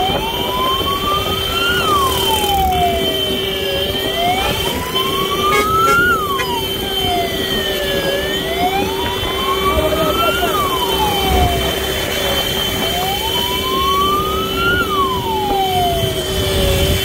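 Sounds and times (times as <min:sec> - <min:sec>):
motorcycles and road traffic: 0:00.0 - 0:17.0
wail siren: 0:00.0 - 0:17.0
steady tone: 0:04.3 - 0:06.9.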